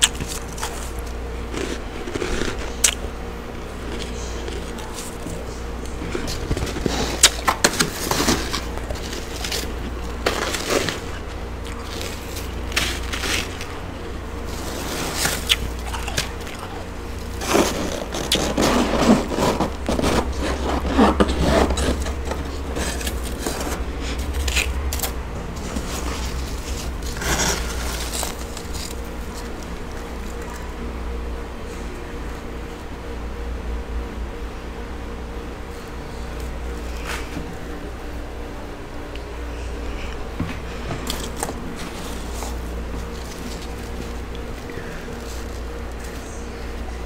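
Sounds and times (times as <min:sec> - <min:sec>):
frost being scraped: 0:03.9 - 0:30.6, 0:41.0 - 0:47.0.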